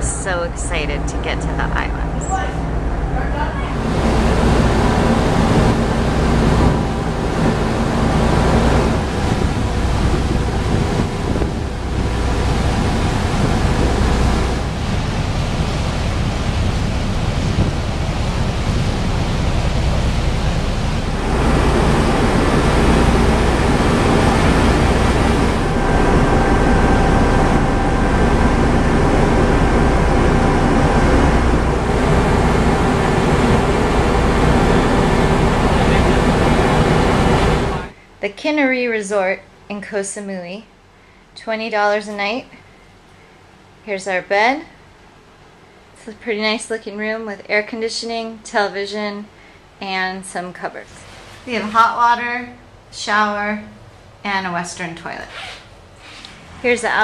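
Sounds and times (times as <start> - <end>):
wind buffeting microphone: 0.0 - 37.9
rush of ship wake: 0.0 - 38.0
ship engines droning: 0.0 - 47.5, 55.8 - 57.0.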